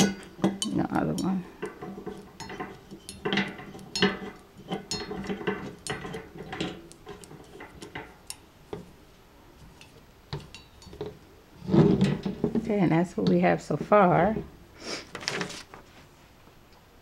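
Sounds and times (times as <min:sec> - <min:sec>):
metal pole screwing clicks and rattles: 0:00.0 - 0:08.8.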